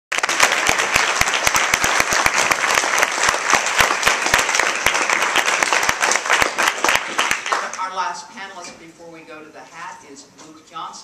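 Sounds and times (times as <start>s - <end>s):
audience applauding: 0.1s - 7.8s.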